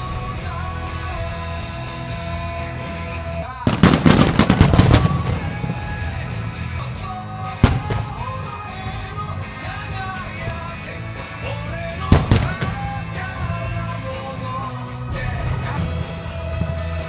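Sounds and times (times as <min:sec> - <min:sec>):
background music: 0:00.0 - 0:17.0
fireworks exploding: 0:03.6 - 0:09.2, 0:12.0 - 0:17.0.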